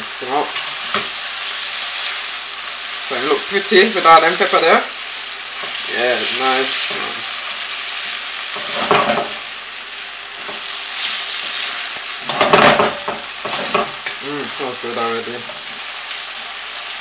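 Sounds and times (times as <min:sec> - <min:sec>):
food sizzling in oil: 0:00.0 - 0:17.0
spatula stirring in a pan: 0:05.0 - 0:14.2.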